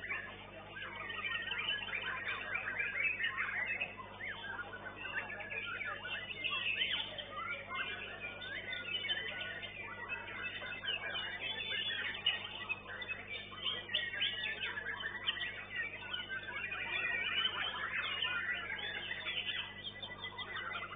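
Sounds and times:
songbird whistling song: 0.0 - 20.9.

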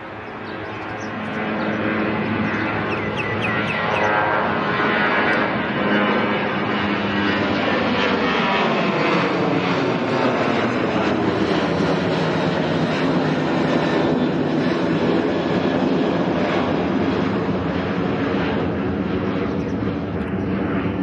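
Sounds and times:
jet engines at takeoff: 0.0 - 21.0.

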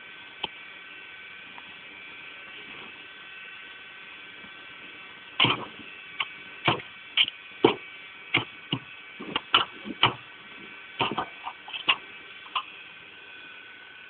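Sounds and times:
faint steady hum: 0.0 - 14.0
sharp clicks and knocks: 5.4 - 10.2, 11.0 - 12.7.

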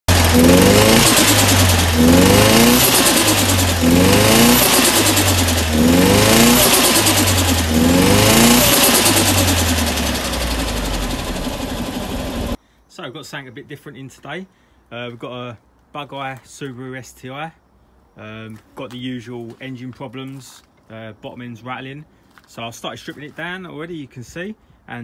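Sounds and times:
car engine revving: 0.0 - 12.6.

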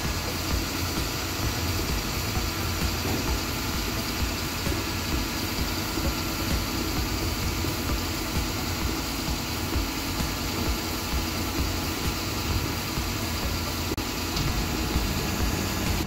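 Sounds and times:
diesel truck engine idling: 0.0 - 16.0
hydraulics lifting: 0.0 - 16.0.

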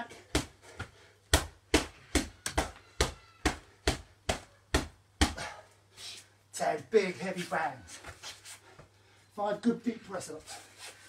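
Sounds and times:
gloves punching heavy bag: 0.0 - 5.6.

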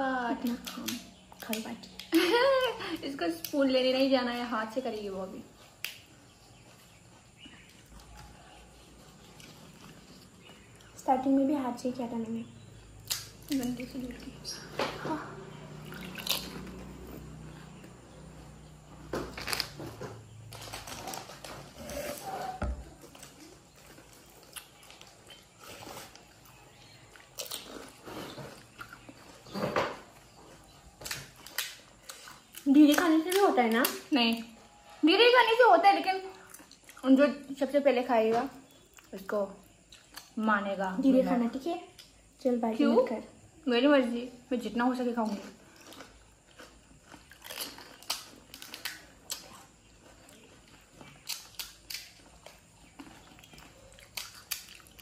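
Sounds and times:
crackles of crisp shells: 0.4 - 34.6, 45.0 - 55.0
crisp food chewing: 5.5 - 11.1, 15.4 - 34.6, 36.2 - 37.4, 38.7 - 40.4, 45.2 - 55.0
crisp shells crunching: 15.9 - 16.8, 45.5 - 55.0.

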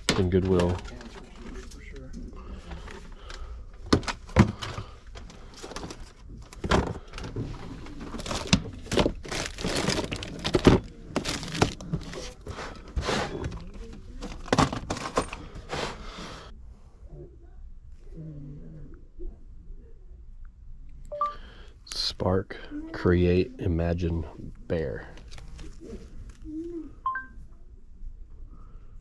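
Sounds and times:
hardware clattering in plastic bin: 3.8 - 15.6
packaging crinkling: 4.0 - 12.4.

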